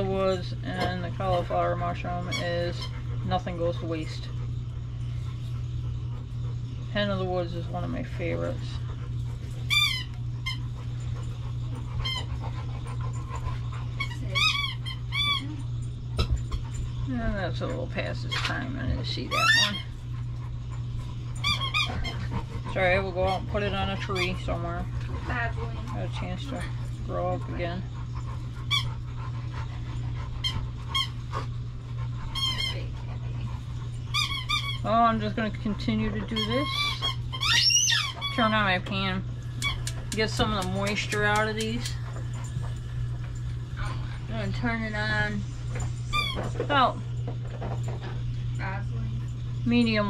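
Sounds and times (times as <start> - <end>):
steady low hum: 0.0 - 50.0
dog whining: 19.1 - 24.5, 36.2 - 38.4.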